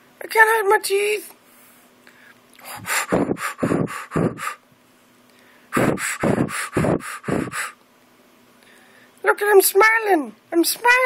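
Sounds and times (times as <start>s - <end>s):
person huffing breathy puffs: 2.6s - 4.6s, 5.4s - 7.8s.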